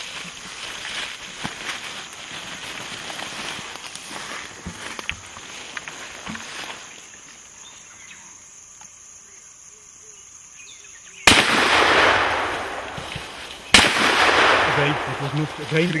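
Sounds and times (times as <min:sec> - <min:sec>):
faint bush sounds: 0:00.0 - 0:16.0
gunshot crack: 0:11.3 - 0:16.0.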